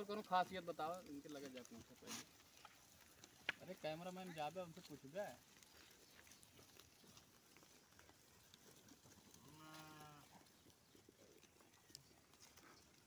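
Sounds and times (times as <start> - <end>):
faint sheep bleat: 9.3 - 10.5.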